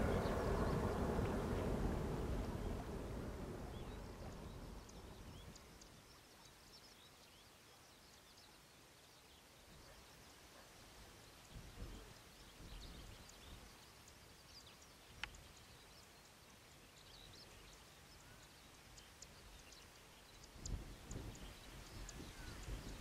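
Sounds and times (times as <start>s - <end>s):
low rumbles: 0.0s - 5.9s
distant birds chirping: 0.0s - 23.0s
low hiss: 0.0s - 23.0s.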